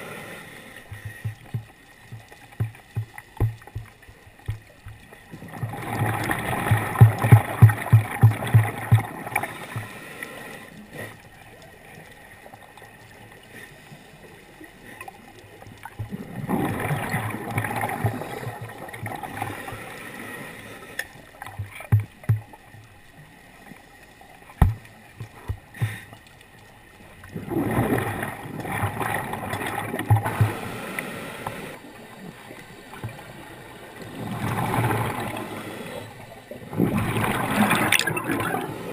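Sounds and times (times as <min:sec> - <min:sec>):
diver breathing: 0:00.0 - 0:01.8, 0:09.2 - 0:11.2, 0:19.2 - 0:21.3, 0:25.5 - 0:26.2, 0:30.2 - 0:31.8
air bubbling underwater: 0:05.4 - 0:09.4, 0:36.7 - 0:38.9.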